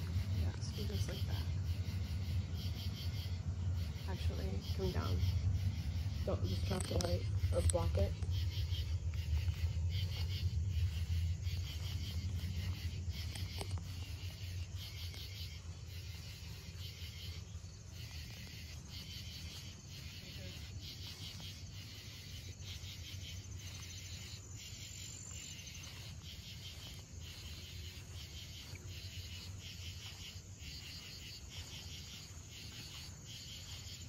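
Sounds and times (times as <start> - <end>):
low rumble: 0.0 - 20.2
insects chirping in bursts: 0.0 - 34.0
thin steady insect trill: 0.0 - 34.0.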